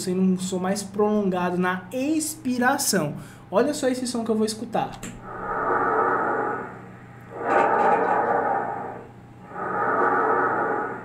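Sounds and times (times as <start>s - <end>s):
tracheal breath sounds: 5.2s - 11.0s.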